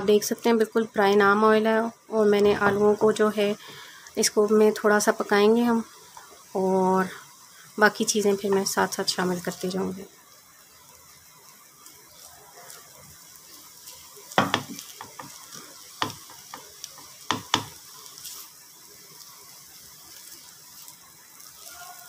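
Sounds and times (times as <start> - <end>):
faint oil sizzle: 0.0 - 22.0
spatula scraping potatoes in pan: 11.8 - 18.5
spatula knocking against pan: 14.4 - 15.4, 16.0 - 17.8.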